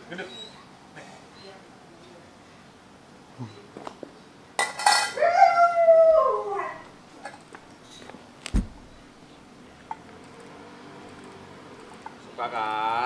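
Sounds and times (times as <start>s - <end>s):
steel bowl clinking on stone: 4.6s - 5.2s
dog howling: 5.2s - 7.0s
dull thump: 8.4s - 9.0s.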